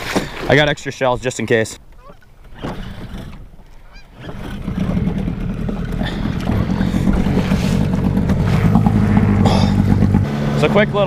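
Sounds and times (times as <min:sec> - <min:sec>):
outboard motor running: 0:02.4 - 0:11.0.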